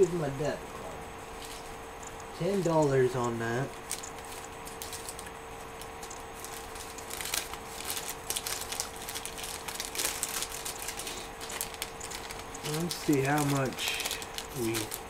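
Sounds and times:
steady hum: 0:00.0 - 0:15.0
crinkling and rustling: 0:03.7 - 0:15.0.

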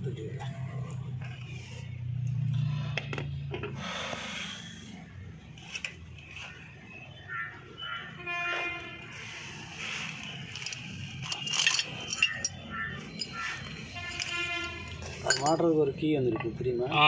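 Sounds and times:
metal scraping and clicking: 0:10.2 - 0:15.6
short metallic rings: 0:10.5 - 0:15.8.

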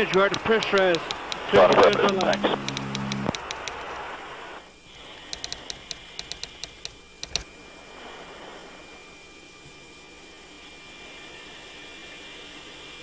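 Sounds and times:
keyboard clicks: 0:00.0 - 0:03.9, 0:05.3 - 0:07.5
steady hiss: 0:00.0 - 0:13.0.

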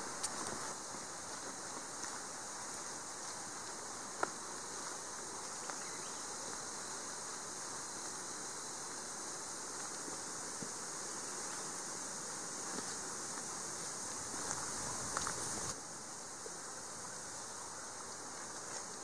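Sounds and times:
high-pitched insect hum: 0:00.0 - 0:19.0.

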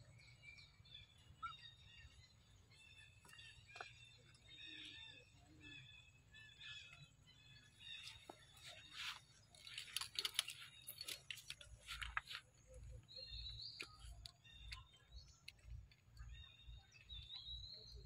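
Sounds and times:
sharp animal clicks and rustles: 0:08.0 - 0:17.4.

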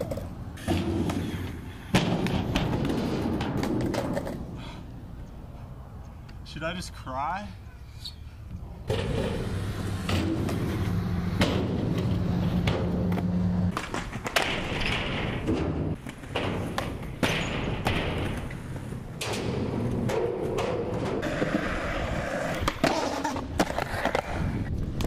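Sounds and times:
skateboard tricks clacking: 0:00.0 - 0:04.6, 0:08.9 - 0:25.0
skateboard wheels rolling on concrete: 0:00.0 - 0:25.0.

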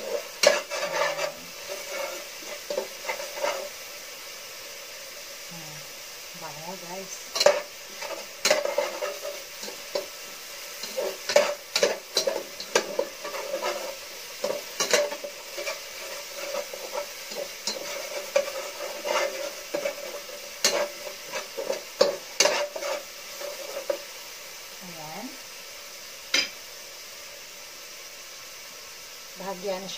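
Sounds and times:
spatula scraping a pan: 0:00.0 - 0:04.2, 0:07.0 - 0:24.5
garlic and onion sizzling in oil: 0:00.0 - 0:29.9.

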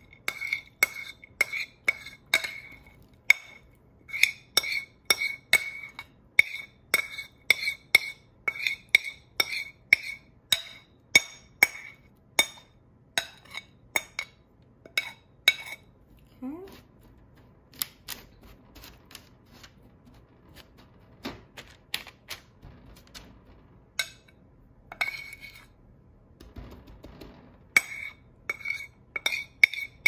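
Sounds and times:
metal spoon clinking on ceramic bowl: 0:00.0 - 0:15.9, 0:27.8 - 0:30.0.

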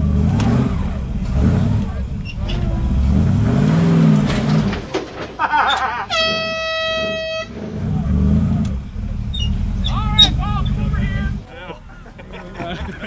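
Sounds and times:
engine revving under load: 0:00.0 - 0:13.0
air horn blast: 0:02.2 - 0:05.0, 0:06.0 - 0:08.0.

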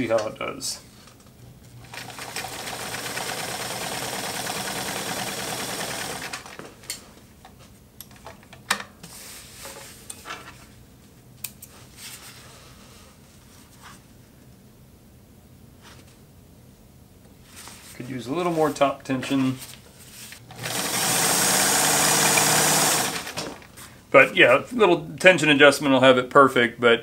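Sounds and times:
sewing machine running: 0:01.8 - 0:06.6, 0:20.5 - 0:23.6.

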